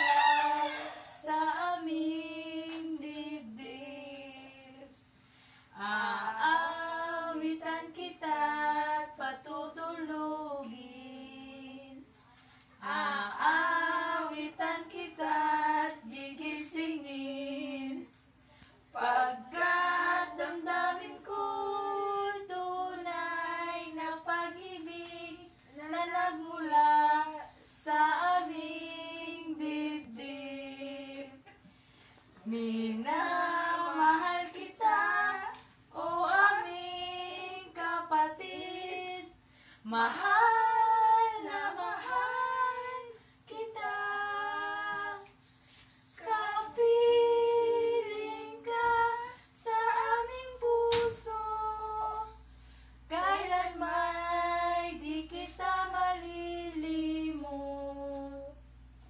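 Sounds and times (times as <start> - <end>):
women singing unaccompanied: 0.0 - 5.1, 5.7 - 12.1, 12.8 - 31.7, 32.4 - 58.8.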